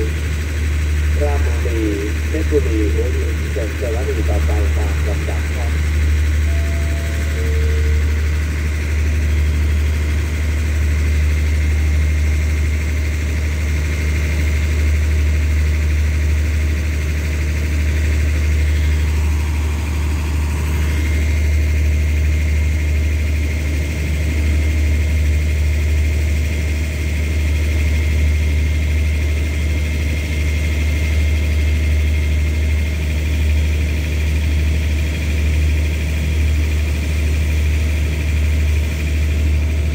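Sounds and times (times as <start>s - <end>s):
faint high whine: 0.0s - 12.1s, 17.6s - 23.0s
diesel train idling: 0.0s - 39.9s.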